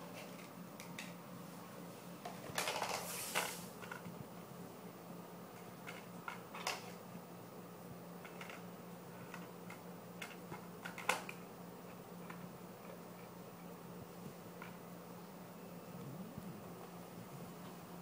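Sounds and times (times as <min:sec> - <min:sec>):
faint steady hum: 0:00.0 - 0:18.0
toy plastic plates clicking: 0:02.5 - 0:04.1, 0:05.6 - 0:07.0, 0:08.2 - 0:11.4.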